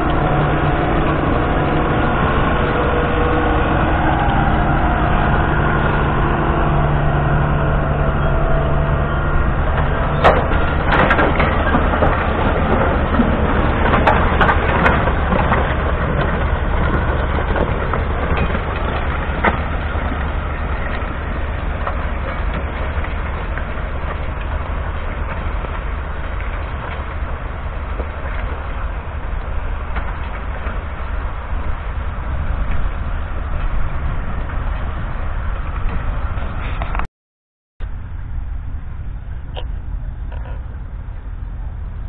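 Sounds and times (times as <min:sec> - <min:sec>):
stubble and soil crackling: 0:00.0 - 0:37.0
tractor engine drone: 0:00.0 - 0:37.1, 0:37.8 - 0:42.0.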